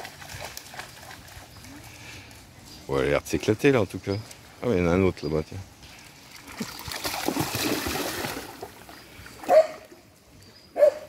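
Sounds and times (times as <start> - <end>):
water splashing: 0.0 - 2.4, 6.0 - 10.0.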